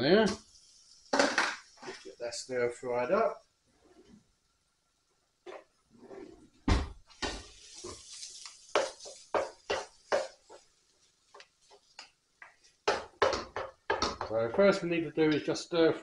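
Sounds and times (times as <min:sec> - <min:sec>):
spoons scraping in a frying pan: 0:00.3 - 0:02.2, 0:05.5 - 0:14.4
heavy thump: 0:06.7 - 0:07.4.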